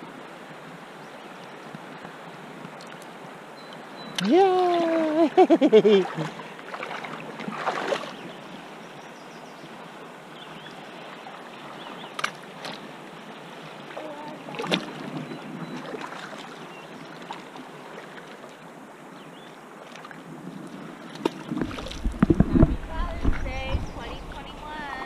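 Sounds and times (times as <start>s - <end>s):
river flowing over gravel: 0.0s - 25.0s
feet splashing in water: 4.2s - 8.3s, 11.7s - 13.0s, 13.8s - 18.6s, 21.0s - 25.0s.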